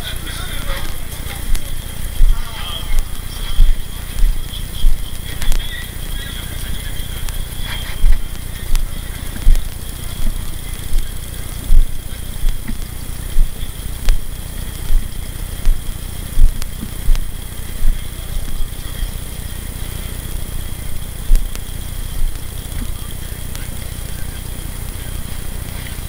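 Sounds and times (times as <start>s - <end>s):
wind rumble: 0.0s - 24.2s
faint steady high tone: 0.0s - 26.0s
footsteps thumping: 0.8s - 5.6s, 7.7s - 18.0s.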